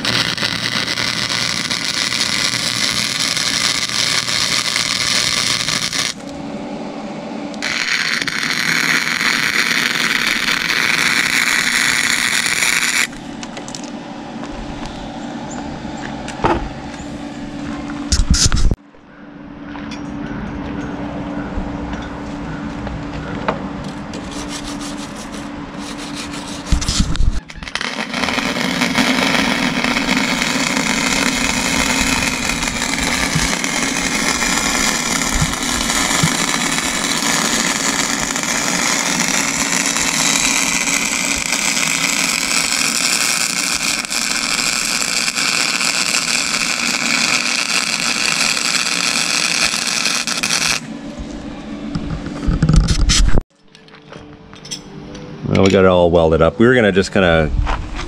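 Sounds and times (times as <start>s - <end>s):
arc welding crackling hiss: 0.0s - 6.3s, 7.6s - 13.2s, 24.7s - 50.9s.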